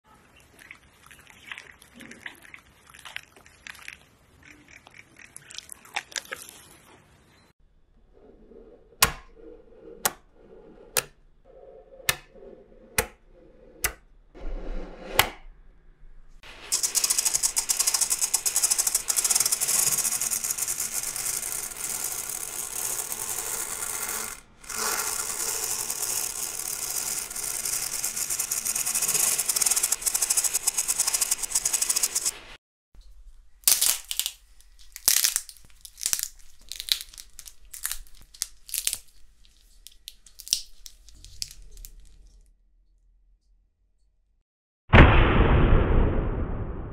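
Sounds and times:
small hard pieces rattling: 16.6s - 32.3s, 33.7s - 42.2s
magnet balls snapping together: 33.6s - 42.2s.

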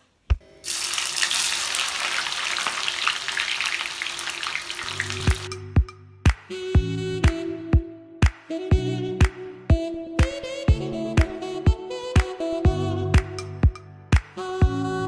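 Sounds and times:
onions sizzling in hot oil: 0.6s - 5.5s
music with steady drum beat: 5.3s - 14.8s.

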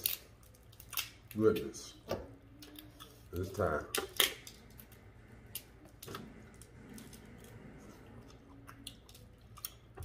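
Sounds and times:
person chewing food: 4.3s - 10.0s.

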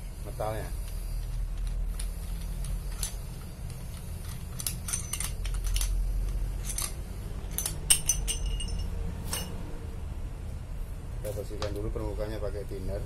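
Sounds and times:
steady low hum: 0.0s - 13.0s
metal parts clicking and tapping: 0.8s - 9.6s.

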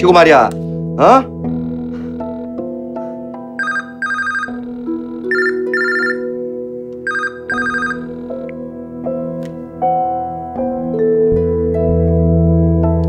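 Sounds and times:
soft background music: 0.0s - 13.0s
telephone ringing: 3.6s - 8.2s.

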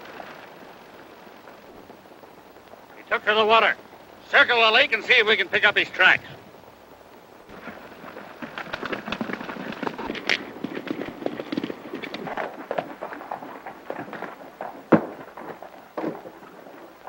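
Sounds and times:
horse hoofbeats galloping: 7.5s - 17.0s.

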